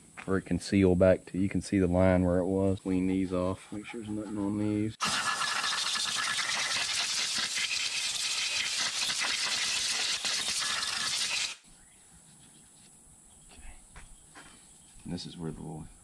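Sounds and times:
air blow gun hissing: 5.0s - 11.6s.

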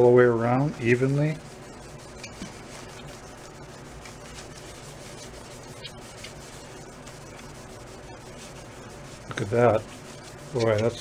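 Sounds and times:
cloth rag rubbing on wood: 0.0s - 11.0s.

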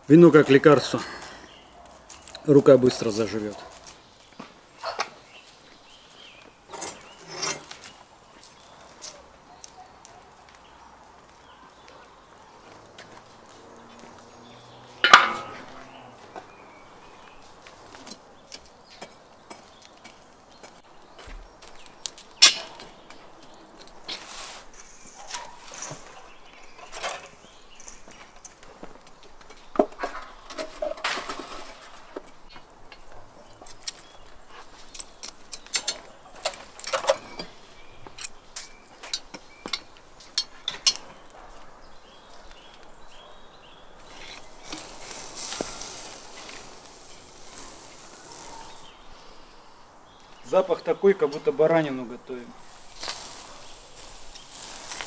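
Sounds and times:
metal skewers clanking on grill: 6.7s - 7.8s, 15.0s - 16.0s, 22.4s - 23.2s, 34.9s - 41.3s, 44.0s - 48.9s
footsteps: 12.6s - 18.2s, 44.0s - 48.9s
steel lid clanging on metal pan: 15.0s - 15.8s
soft steady hiss: 15.0s - 55.0s.

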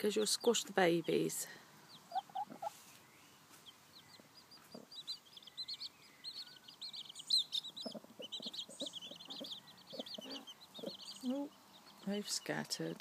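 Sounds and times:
hen clucking: 0.0s - 3.0s, 4.1s - 5.8s, 6.7s - 12.2s
chicks peeping: 0.0s - 13.0s.

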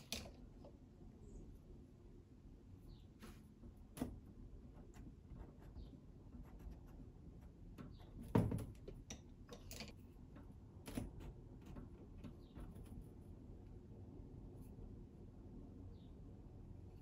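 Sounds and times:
pencil tapping and scratching paper: 3.9s - 9.0s.

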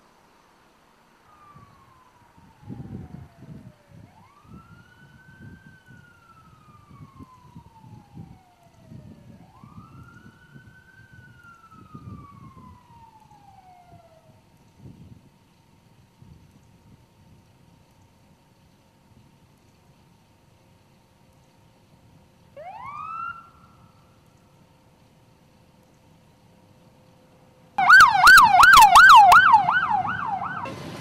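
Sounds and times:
low rumble of vehicles: 0.0s - 31.0s
police siren wailing: 1.3s - 14.4s, 22.6s - 24.2s, 27.8s - 30.9s.

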